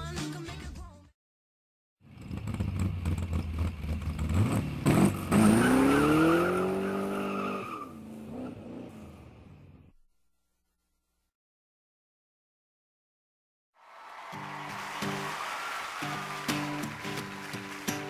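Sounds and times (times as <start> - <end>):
vehicle engine revving: 2.1 - 9.8.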